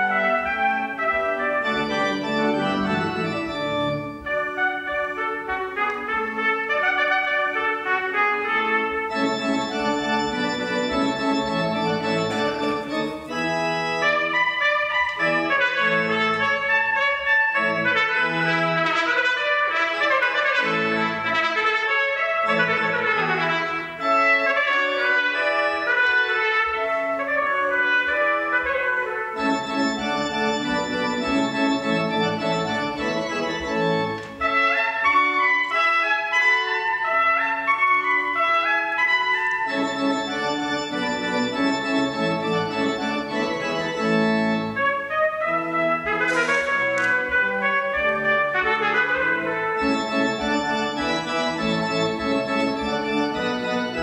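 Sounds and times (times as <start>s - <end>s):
piccolo trumpet playing fast passages: 0.0s - 33.7s, 34.4s - 54.0s
sustained church organ: 0.0s - 54.0s.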